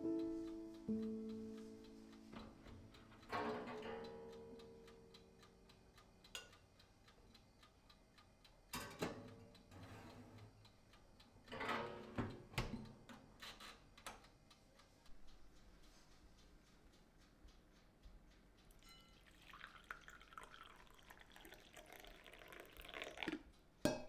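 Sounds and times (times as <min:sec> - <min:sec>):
oven timer ticking: 0:00.0 - 0:24.0
oven door and wire rack clatter: 0:11.5 - 0:12.8.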